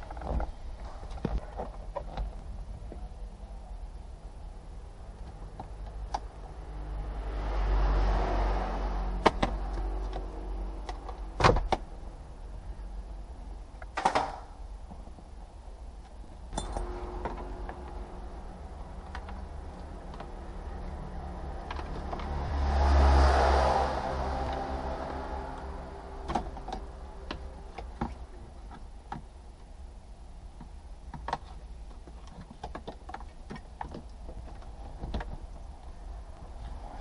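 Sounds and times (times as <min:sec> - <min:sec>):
low workshop rumble: 0:08.4 - 0:32.6
knocks and clicks of parts handled: 0:09.2 - 0:11.8, 0:16.0 - 0:18.0, 0:19.0 - 0:20.4, 0:26.2 - 0:29.3, 0:30.6 - 0:35.8.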